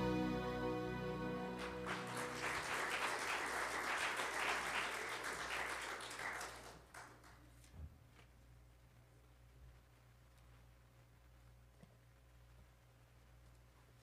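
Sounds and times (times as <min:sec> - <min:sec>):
held chord ringing: 0:00.0 - 0:02.7
congregation clapping: 0:01.5 - 0:07.4.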